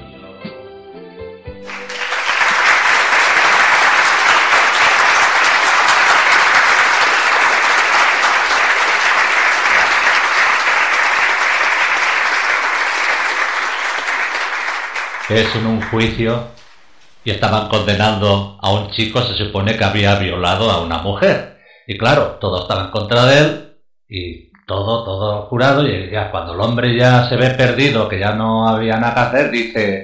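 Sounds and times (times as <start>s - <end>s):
song ending: 0.1s - 4.1s
crowd applauding: 1.6s - 16.9s.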